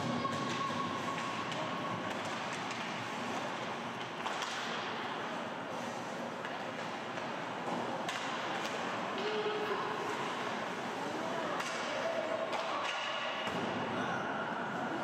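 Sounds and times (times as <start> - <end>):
hockey sticks clacking on puck: 0.0 - 5.2, 6.3 - 10.6, 11.6 - 13.6.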